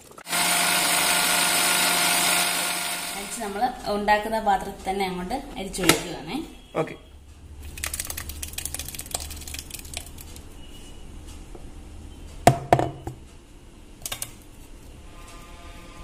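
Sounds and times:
gravy poured through strainer: 7.6s - 10.4s.

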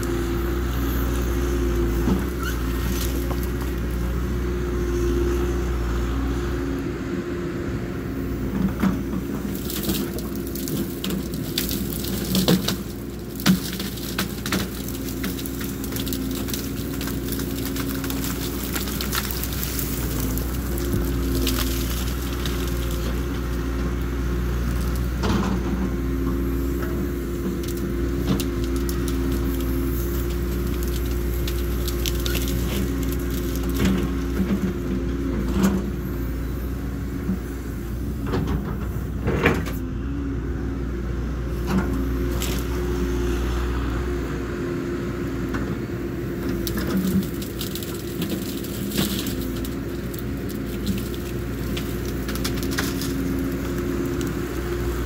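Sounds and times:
excavator diesel engine running: 0.0s - 55.0s
branches cracking and snapping: 2.3s - 4.1s, 9.4s - 25.4s, 26.5s - 34.8s, 41.8s - 43.0s, 46.4s - 55.0s.

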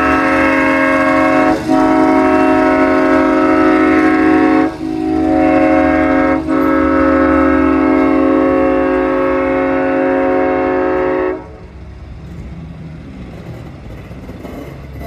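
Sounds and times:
train air horn: 0.0s - 11.8s
train coaches rumbling on rails: 0.0s - 15.0s.

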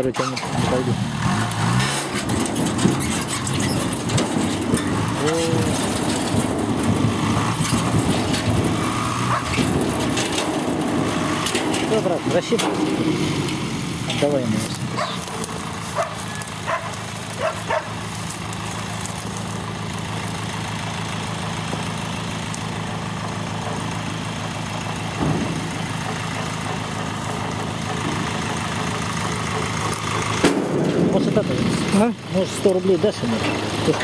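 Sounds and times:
truck engine idling: 0.0s - 34.0s
dog barking: 9.3s - 9.6s, 15.0s - 18.0s.

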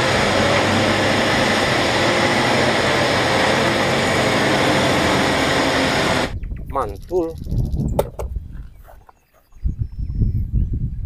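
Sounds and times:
heavy diesel engines running: 0.0s - 6.4s.

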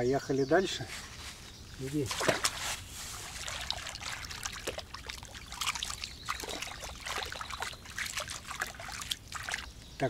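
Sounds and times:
water splashing and trickling: 1.8s - 9.8s.

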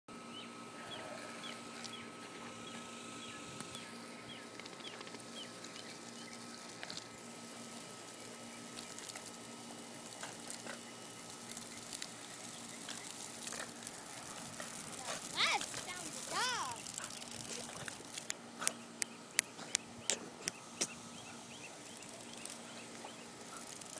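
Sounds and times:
sprinkler water pattering on grass: 3.6s - 21.0s, 21.7s - 23.9s
small bird chirping: 10.8s - 13.5s, 18.7s - 23.9s.

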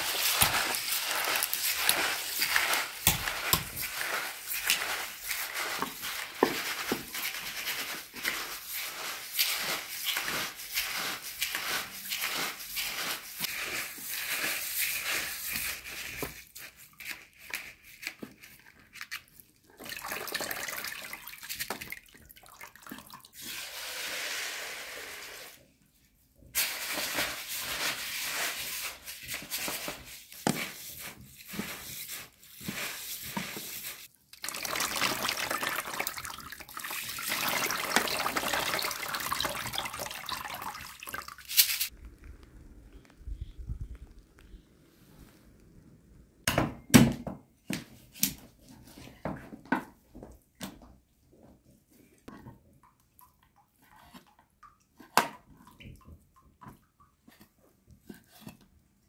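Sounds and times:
beans washed in water: 0.0s - 25.6s, 26.6s - 44.7s.

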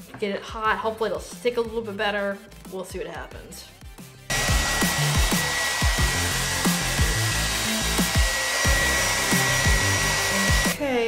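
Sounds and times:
background music with a beat: 1.2s - 11.0s
hair dryer blowing: 4.3s - 10.8s.

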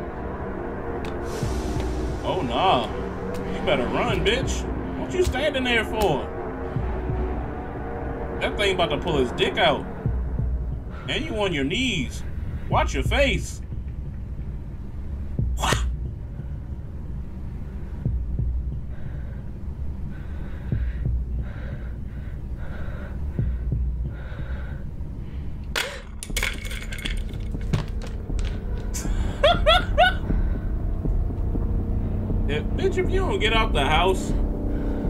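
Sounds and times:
low rumbling drone: 0.0s - 35.0s
soft low thuds: 18.0s - 18.9s, 20.7s - 21.6s, 23.3s - 24.2s.

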